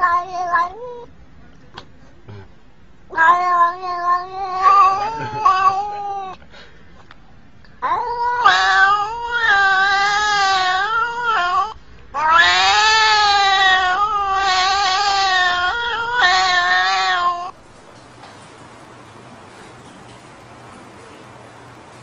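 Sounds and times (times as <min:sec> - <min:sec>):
cat yowling: 0:00.0 - 0:01.1, 0:03.1 - 0:06.4, 0:07.8 - 0:17.6.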